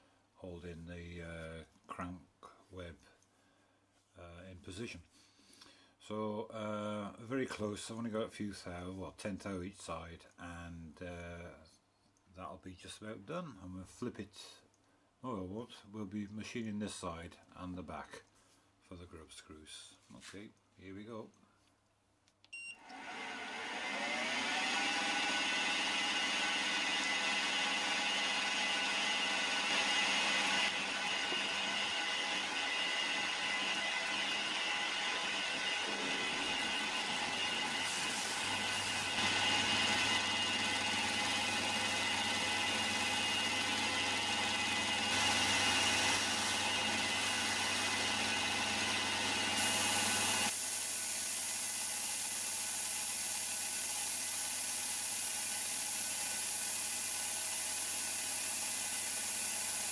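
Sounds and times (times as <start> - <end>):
milling machine cutting metal: 23.9 - 59.9.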